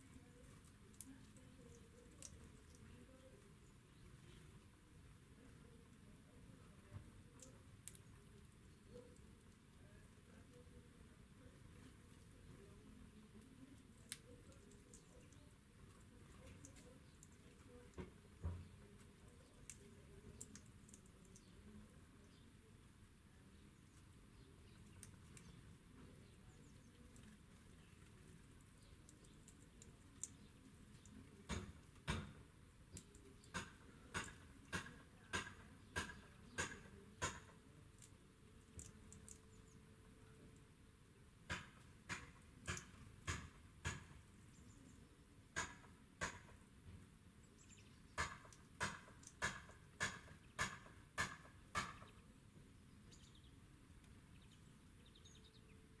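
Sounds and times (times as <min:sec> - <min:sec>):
birds pecking on wooden table: 0:06.7 - 0:22.6, 0:23.6 - 0:39.8, 0:40.4 - 0:47.1, 0:47.7 - 0:52.3.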